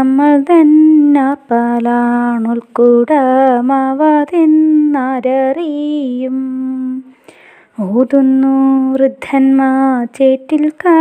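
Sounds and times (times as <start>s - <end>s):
woman chanting unaccompanied song: 0.0s - 7.1s, 7.8s - 11.0s.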